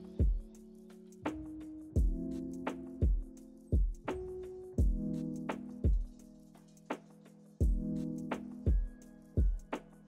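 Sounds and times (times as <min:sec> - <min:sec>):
kick drum thumps: 0:02.0 - 0:02.2, 0:03.0 - 0:04.1, 0:05.9 - 0:06.2, 0:07.6 - 0:07.9, 0:08.7 - 0:09.7.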